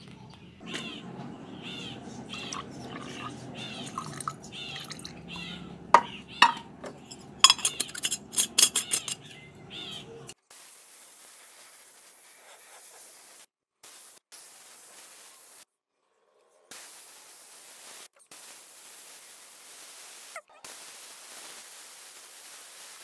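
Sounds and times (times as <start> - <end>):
metal clinks of paint cans: 0.6 - 10.3.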